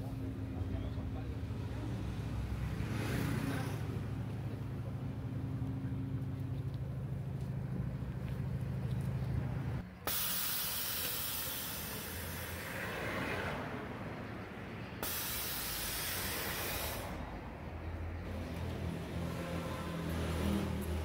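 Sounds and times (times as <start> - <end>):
steady low hum: 3.8 - 12.8
air hissing from suspension: 10.0 - 13.2, 15.0 - 17.5.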